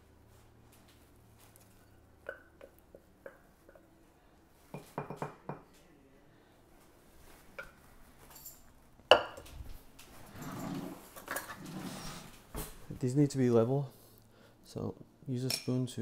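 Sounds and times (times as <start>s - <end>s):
wooden spoon tapping ceramic: 2.2s - 3.9s, 4.7s - 5.7s.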